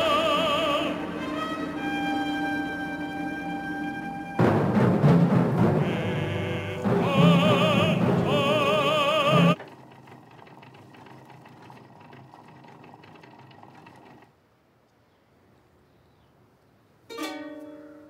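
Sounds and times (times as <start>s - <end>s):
operatic singing with orchestra: 0.0s - 4.6s, 5.4s - 9.7s
faint record hiss: 0.0s - 9.6s, 14.2s - 18.0s.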